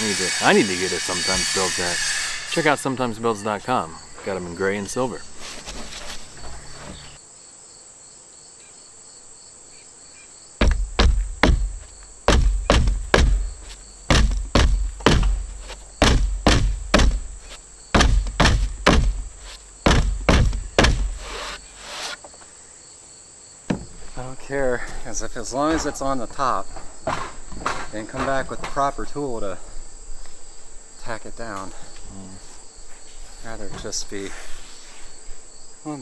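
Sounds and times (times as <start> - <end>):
insects chirring: 0.0 - 36.0
hammer blows on plywood: 10.6 - 22.2.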